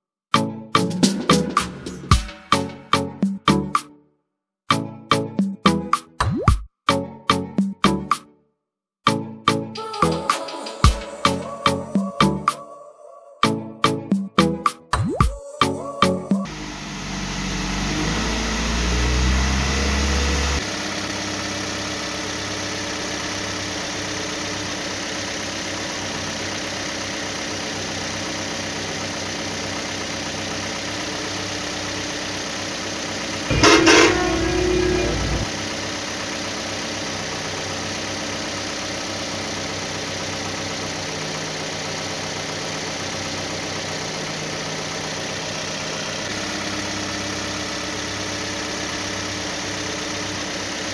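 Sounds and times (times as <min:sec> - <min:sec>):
engine idling: 0:16.5 - 0:50.9
loud vehicle horn blast: 0:33.5 - 0:35.5.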